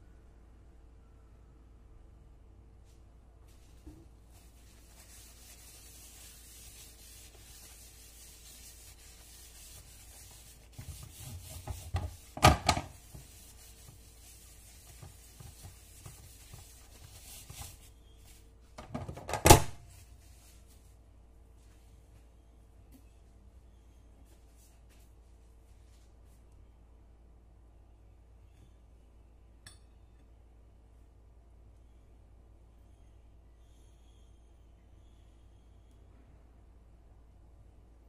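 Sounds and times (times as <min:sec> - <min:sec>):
paper towel scrubbing metal plates: 0:03.5 - 0:20.5.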